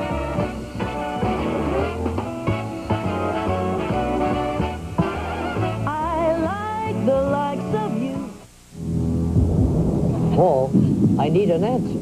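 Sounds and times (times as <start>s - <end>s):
band with guitar and vibrato melody: 0.0s - 8.4s.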